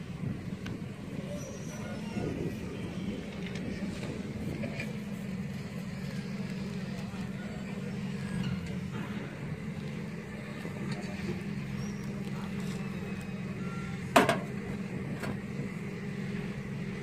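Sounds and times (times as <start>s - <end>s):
steady low drone: 0.0s - 17.0s.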